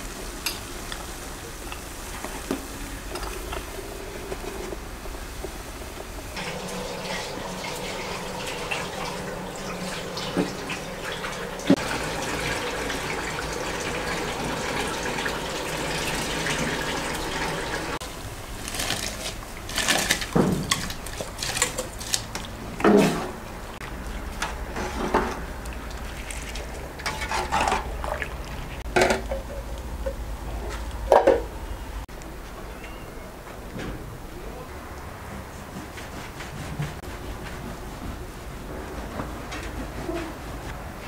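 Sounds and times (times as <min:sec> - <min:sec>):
tap water running over rice: 0:00.0 - 0:22.6, 0:23.8 - 0:29.4.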